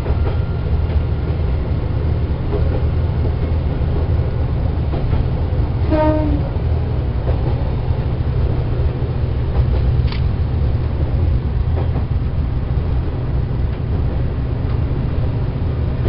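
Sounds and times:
diesel railcar rumbling: 0.0 - 16.0
train horn blast: 5.8 - 6.6
sharp click: 10.0 - 10.3.

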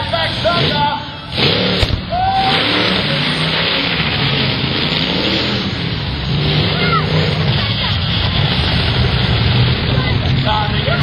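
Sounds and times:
truck engine revving loud: 0.0 - 11.0
short thump: 1.8 - 2.1.

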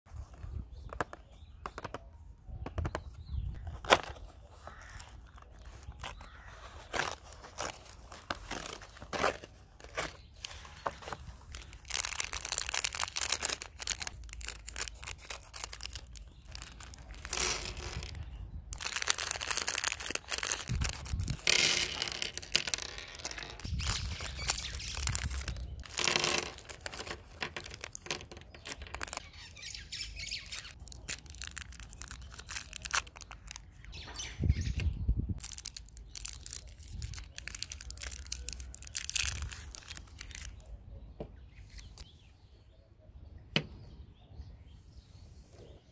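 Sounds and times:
plastic and foil wrappers crinkling: 3.8 - 29.3, 30.4 - 33.9, 35.4 - 40.7
candy clicking into wooden tray: 25.1 - 29.2.

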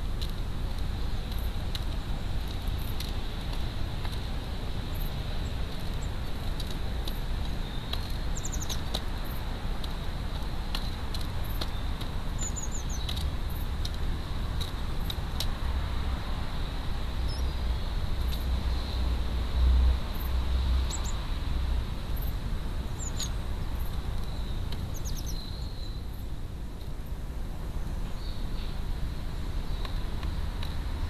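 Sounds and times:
small bird chirping: 4.9 - 9.4, 10.6 - 13.7, 17.2 - 19.0, 20.2 - 21.2, 22.2 - 26.2.

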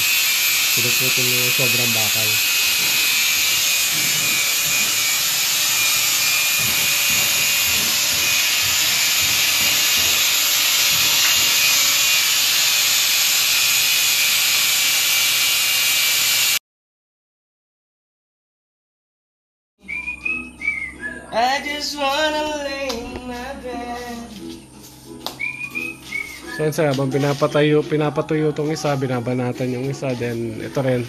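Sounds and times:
angle grinder cutting steel: 0.0 - 16.6.

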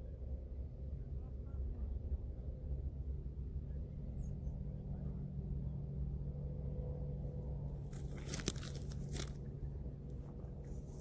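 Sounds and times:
steady low rumble: 0.0 - 11.0
crunching and rustling: 7.9 - 9.5.

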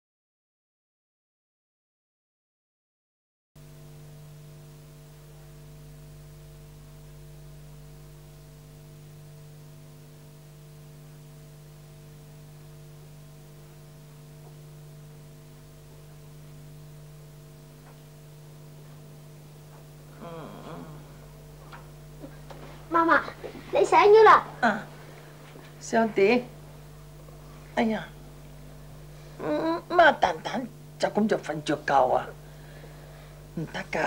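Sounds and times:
electrical mains hum: 3.6 - 34.0.

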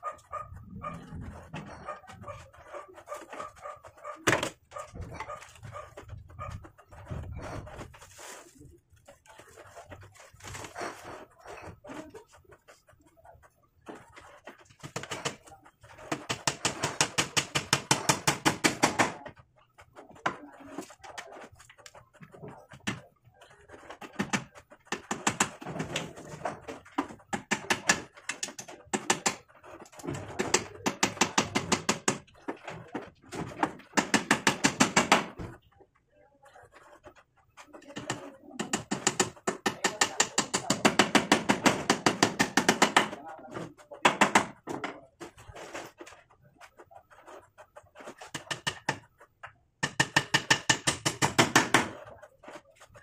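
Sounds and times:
hammer driving nails into wood: 16.0 - 19.3, 23.8 - 35.5, 38.0 - 43.2, 44.0 - 45.0, 48.2 - 49.1, 49.8 - 52.6.

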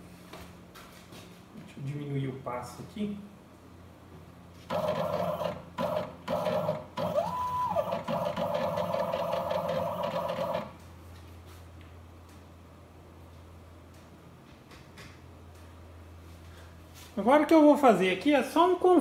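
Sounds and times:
stepper motors whining: 4.7 - 10.8.

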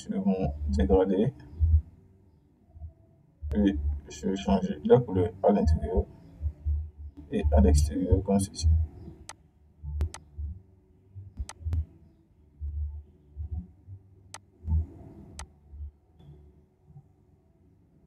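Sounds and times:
computer mouse clicking: 10.0 - 10.3, 11.4 - 11.8.

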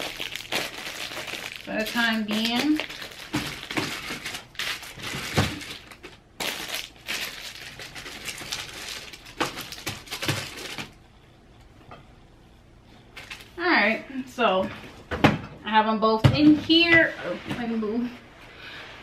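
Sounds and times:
packaging crinkling and rustling: 0.0 - 11.0, 13.2 - 13.6.

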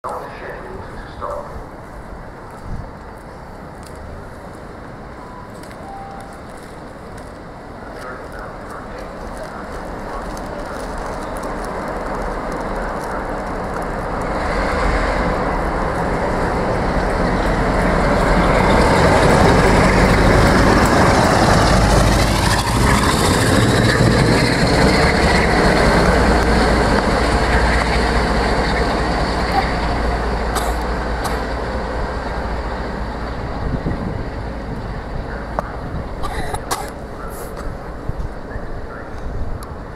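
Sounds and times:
train wheels on rails: 0.0 - 39.9
diesel locomotive engine thrashing: 14.0 - 37.1.

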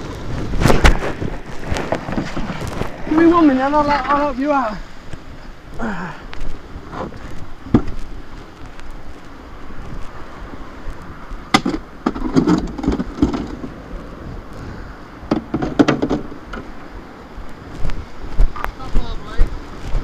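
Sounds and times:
kayak knocking and bumping: 0.1 - 5.3, 6.8 - 8.4, 11.4 - 13.9, 15.2 - 16.9.

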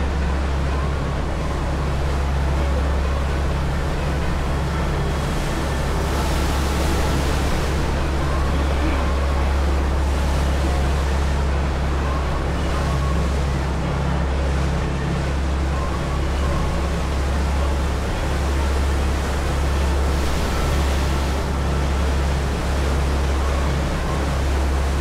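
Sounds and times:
ferry engines droning: 0.0 - 25.0
wake rushing: 0.0 - 25.0
wind: 0.0 - 25.0.

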